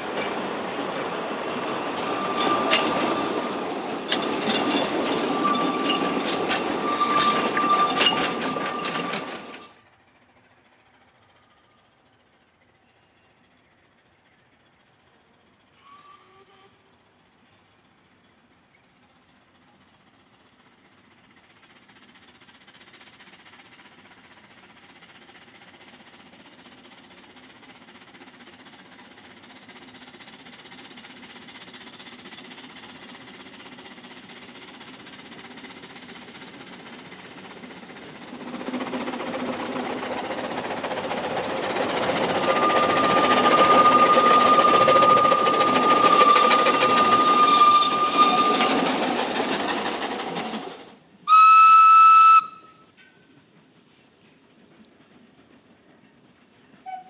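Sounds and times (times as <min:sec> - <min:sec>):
steam locomotive running: 0:00.0 - 0:57.0
train whistle blast: 0:06.8 - 0:09.0, 0:15.8 - 0:17.0, 0:42.3 - 0:48.8, 0:51.3 - 0:53.2.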